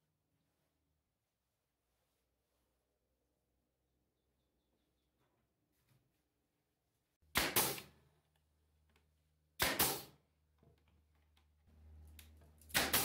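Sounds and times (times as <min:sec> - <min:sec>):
nail gun firing: 0:07.3 - 0:07.9, 0:09.6 - 0:10.2, 0:12.7 - 0:13.0.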